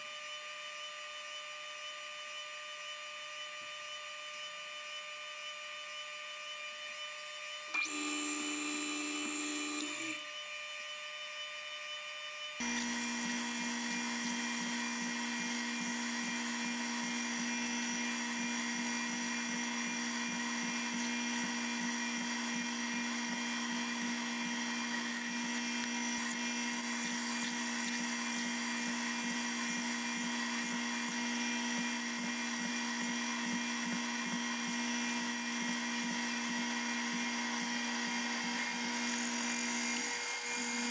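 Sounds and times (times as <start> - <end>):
milling machine whine: 0.1 - 40.9.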